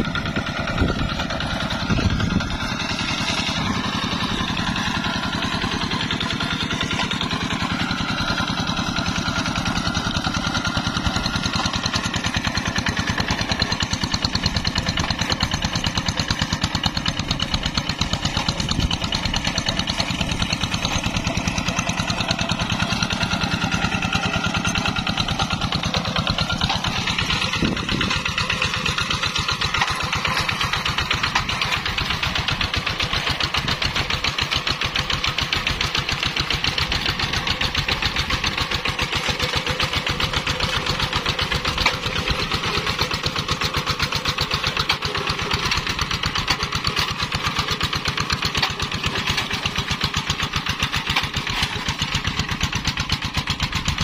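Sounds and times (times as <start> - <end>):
diesel engine chugging: 0.0 - 54.0.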